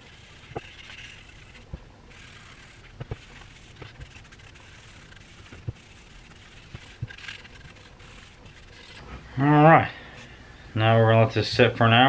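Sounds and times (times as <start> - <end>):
paper towel rubbing wood: 0.0 - 9.2.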